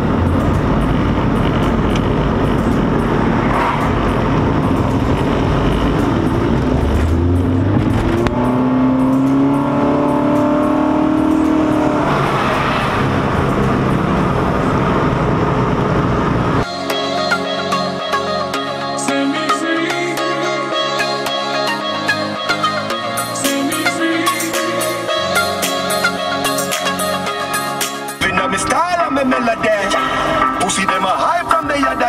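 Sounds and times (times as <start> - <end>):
engine note rising: 0.0 - 16.7
road and engine noise in car: 0.0 - 16.8, 21.6 - 32.0.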